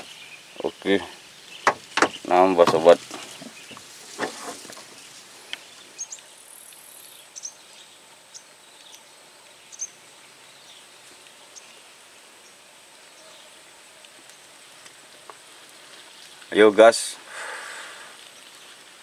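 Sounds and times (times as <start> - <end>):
faint high insect whine: 3.1 - 19.0.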